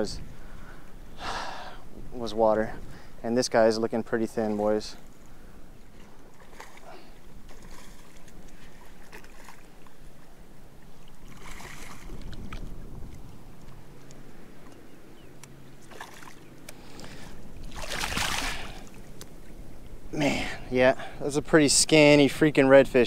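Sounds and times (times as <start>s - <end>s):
wind noise on microphone: 0.0s - 3.2s, 11.2s - 14.5s
fish splashing in water: 11.2s - 12.7s, 15.8s - 16.9s, 17.6s - 19.2s.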